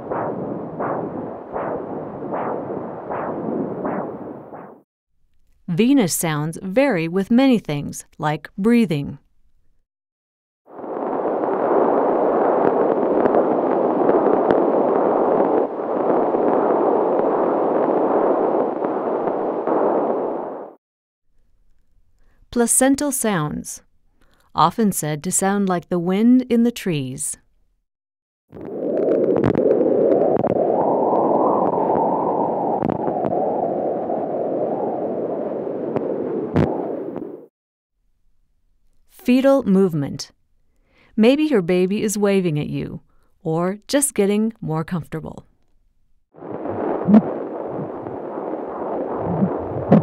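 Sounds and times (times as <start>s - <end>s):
doppler rushing noise: 0.0s - 4.8s.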